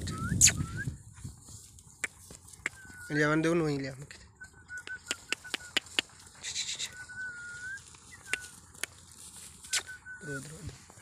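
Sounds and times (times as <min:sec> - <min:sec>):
whistled bird calls: 0:00.0 - 0:01.0, 0:02.6 - 0:03.3, 0:04.3 - 0:08.6, 0:09.6 - 0:10.6
goats tearing grass: 0:05.1 - 0:11.0.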